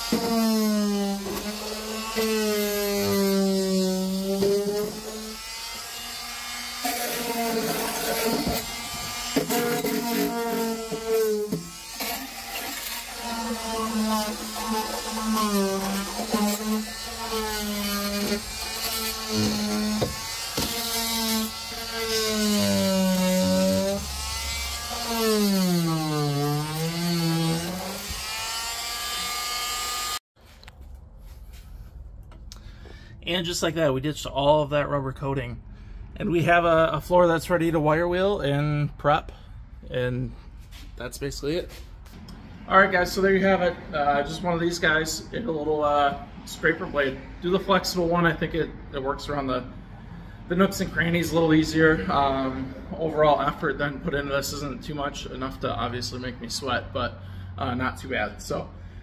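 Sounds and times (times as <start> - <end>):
oscillating multi-tool buzzing: 0.0 - 30.2.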